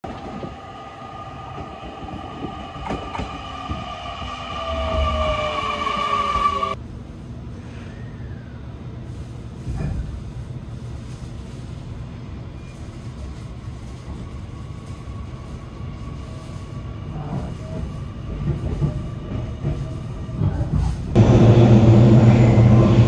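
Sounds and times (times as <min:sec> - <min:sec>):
electric train whine: 0:00.0 - 0:06.8, 0:21.2 - 0:23.0
low steady train rumble: 0:00.0 - 0:23.0.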